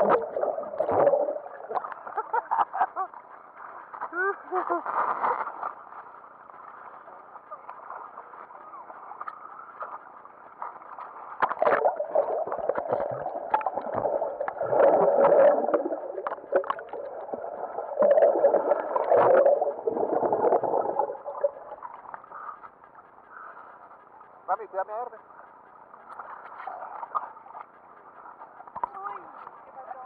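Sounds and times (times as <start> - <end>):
water sloshing and splashing: 0.0 - 2.6, 6.0 - 22.7.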